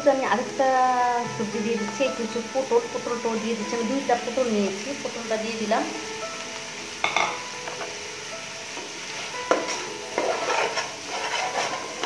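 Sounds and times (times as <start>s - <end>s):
frying sizzle: 0.0s - 12.0s
spatula clinking on pot: 9.4s - 12.0s
spatula scraping metal pot: 9.5s - 12.0s.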